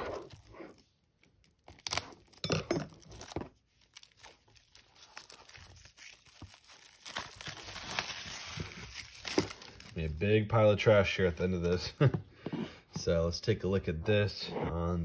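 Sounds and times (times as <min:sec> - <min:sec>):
plastic shrink-wrap ripping: 0:00.0 - 0:02.4, 0:03.0 - 0:10.4
plastic film crinkling: 0:03.0 - 0:12.0.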